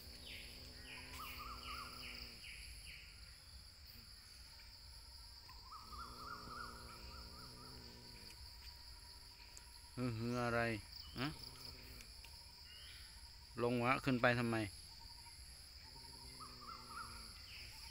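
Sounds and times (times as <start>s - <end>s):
insect chorus: 0.0s - 17.9s
wavering animal calls: 5.6s - 8.0s, 15.9s - 17.7s.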